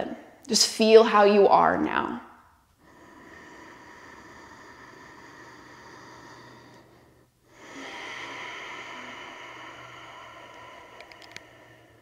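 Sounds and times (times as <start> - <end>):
soft breathing through the nose: 2.6 - 12.0.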